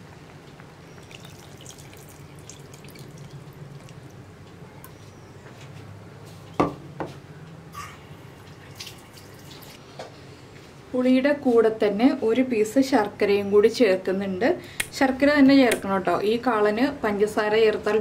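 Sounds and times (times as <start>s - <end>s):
liquid pouring and splashing: 1.0s - 4.2s, 8.6s - 9.8s.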